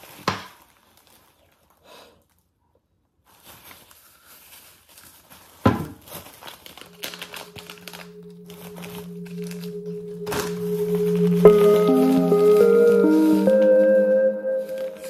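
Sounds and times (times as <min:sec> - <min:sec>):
soft music with held notes: 0:06.8 - 0:15.0.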